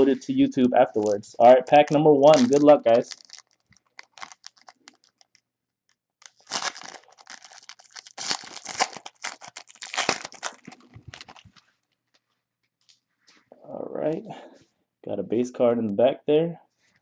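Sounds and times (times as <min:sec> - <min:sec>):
foil wrapper tearing and crinkling: 0:01.0 - 0:05.4, 0:06.2 - 0:12.2.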